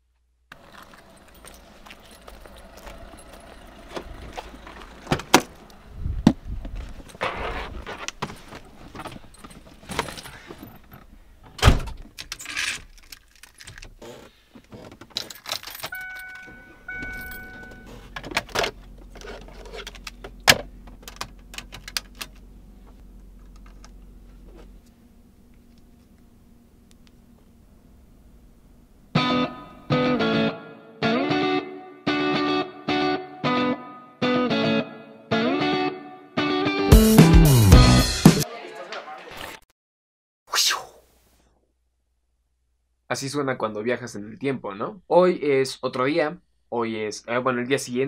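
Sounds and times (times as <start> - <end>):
car keys jangling: 0.6 - 5.0, 12.1 - 14.0, 14.6 - 22.5
car door shutting: 3.8 - 6.4
low steady hum: 15.6 - 29.9
car warning chime: 15.8 - 18.0.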